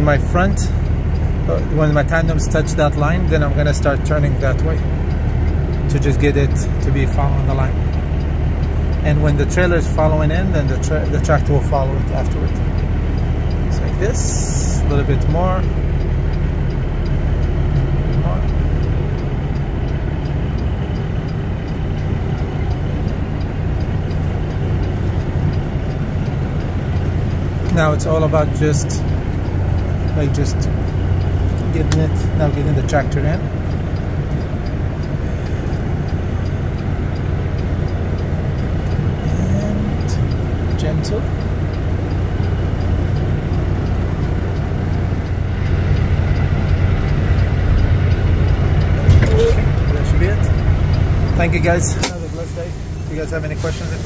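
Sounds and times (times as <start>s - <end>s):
diesel truck engine idling: 0.0s - 54.0s
faint regular ticking: 0.0s - 54.0s.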